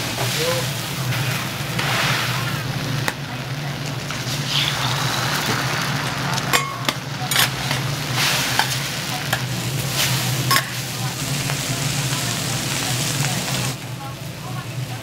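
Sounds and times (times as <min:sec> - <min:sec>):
food sizzling on a griddle: 0:00.0 - 0:15.0
utensils clicking and scraping on griddle: 0:06.4 - 0:11.7.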